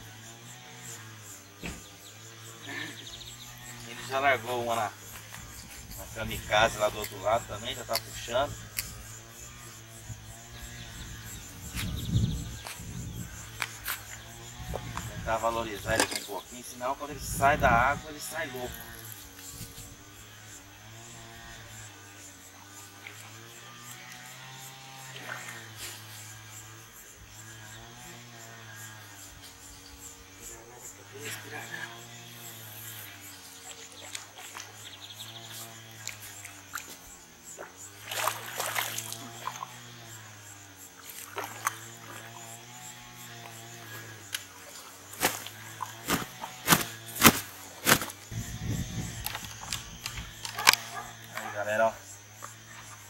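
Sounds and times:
fish thrashing and slapping: 37.6 - 39.7, 44.6 - 48.3.

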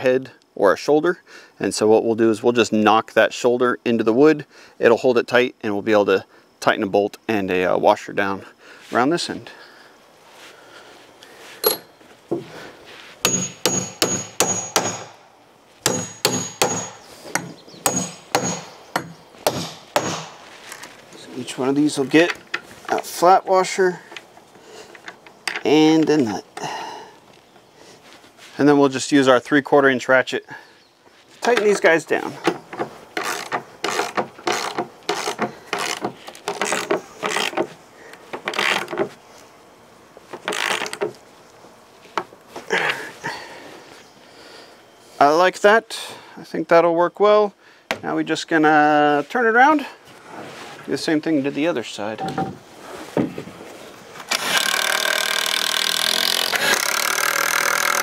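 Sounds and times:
hammer striking metal bolt: 13.3 - 15.1, 15.8 - 20.3
ratchet wrench clicking: 54.3 - 58.0.

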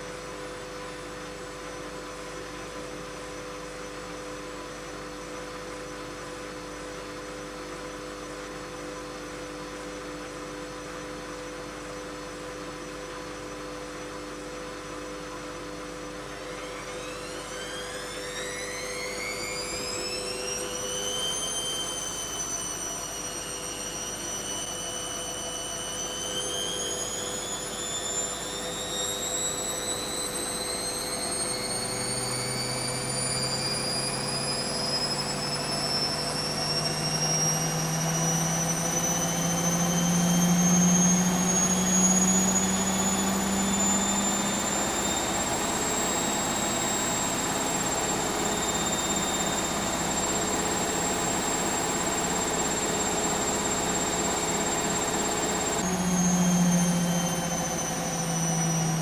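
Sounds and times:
washing machine motor whine: 0.0 - 59.0.

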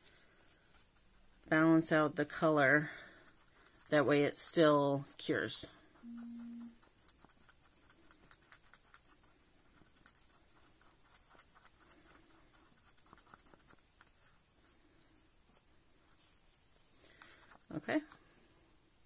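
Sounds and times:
stir stick scraping in cup: 0.0 - 14.1.

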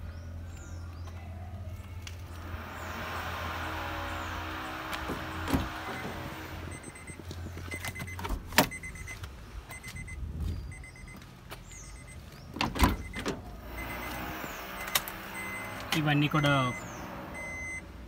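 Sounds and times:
faint rapid beeping: 6.7 - 12.2, 12.9 - 17.8
car door clicks: 7.7 - 8.8.

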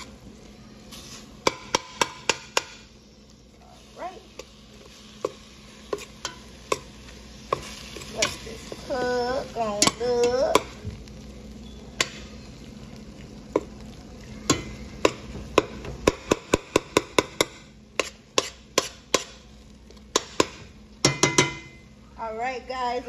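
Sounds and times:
spoon stirring ground meat: 3.8 - 9.0.

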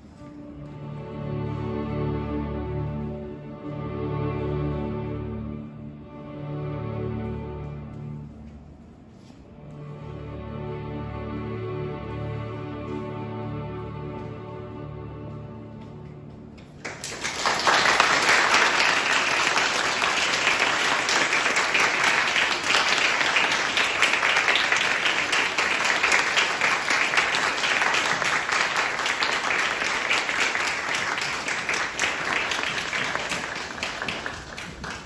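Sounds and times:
audience applauding: 16.8 - 35.0.

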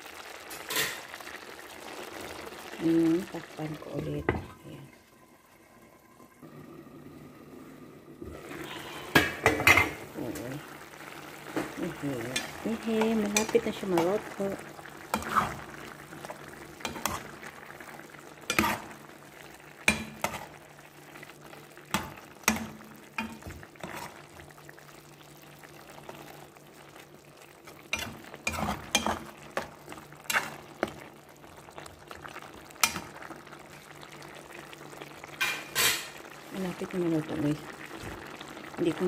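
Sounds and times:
sauce simmering and bubbling: 0.0 - 39.0
utensils clinking and scraping pan: 11.6 - 14.2, 15.1 - 15.7, 16.8 - 17.4, 18.4 - 18.9, 27.9 - 30.9, 35.4 - 36.2.

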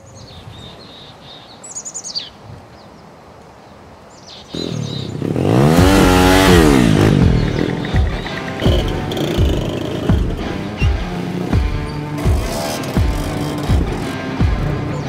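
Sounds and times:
birds chirping faintly: 0.0 - 15.0
moped engine revving: 4.5 - 15.0.

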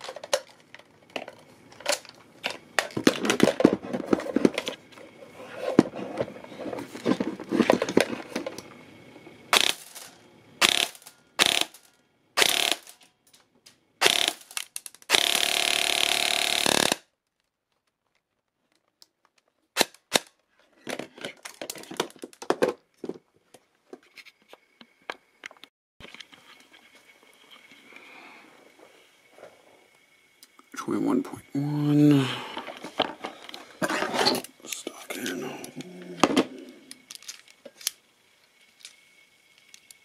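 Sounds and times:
rustling and handling noise: 0.0 - 10.2, 17.1 - 19.7, 20.4 - 30.1, 32.5 - 40.0
airsoft gun firing bursts: 10.6 - 11.8, 12.4 - 13.0.

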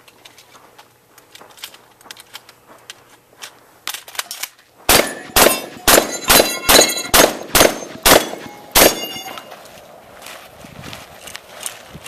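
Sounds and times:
rapid shotgun shots: 4.9 - 9.3
steel targets ringing: 4.9 - 9.6.

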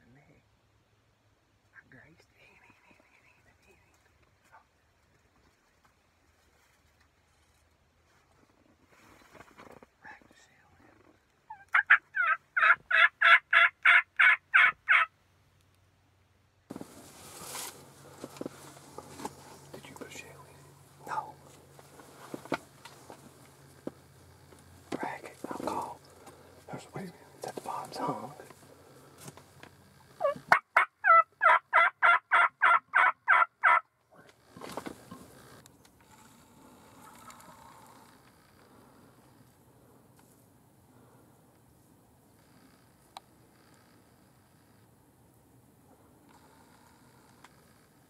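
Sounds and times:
light rustles: 3.6 - 10.0, 16.7 - 30.1, 34.2 - 36.3
turkey call yelps: 11.5 - 15.1, 30.2 - 33.9.

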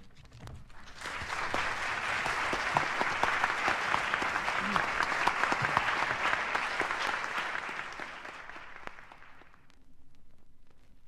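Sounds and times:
audience applause: 0.8 - 9.6.

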